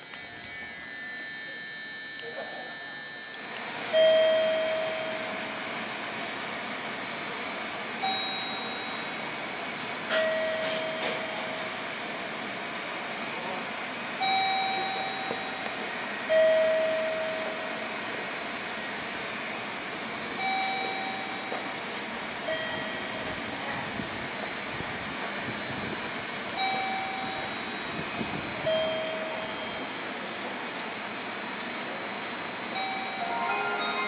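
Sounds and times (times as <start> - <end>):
train mechanical hiss: 3.4 - 9.9, 17.1 - 34.0
two-note chime: 32.8 - 34.0.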